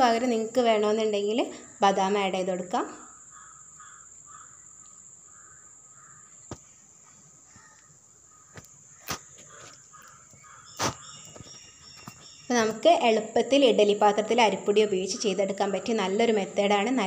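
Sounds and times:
steady high hiss: 0:00.0 - 0:12.9
distant calls: 0:03.0 - 0:13.3.

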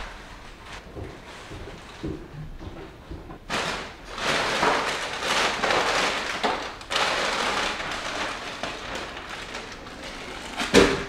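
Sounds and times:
plastic bags crinkling: 0:03.5 - 0:11.0.

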